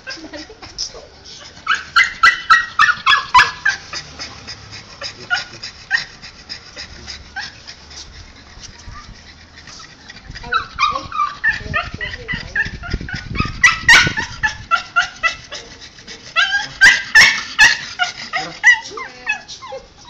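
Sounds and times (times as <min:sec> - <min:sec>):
dog whimpering: 0:00.0 - 0:20.0
dog yipping: 0:01.4 - 0:04.1, 0:10.4 - 0:20.0.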